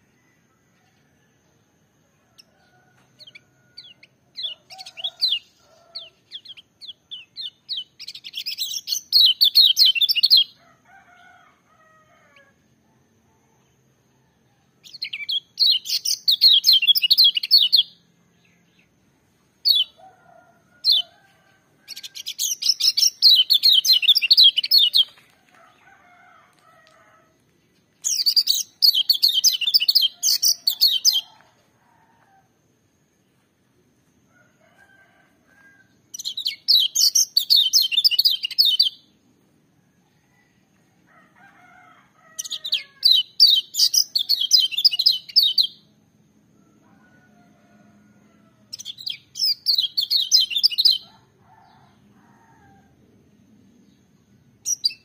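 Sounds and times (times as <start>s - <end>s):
bird singing shrill song: 3.2s - 10.6s, 14.8s - 18.9s, 19.6s - 20.1s, 21.8s - 25.2s, 28.0s - 31.4s, 36.1s - 39.1s, 42.4s - 45.9s, 48.7s - 51.1s, 54.6s - 55.0s.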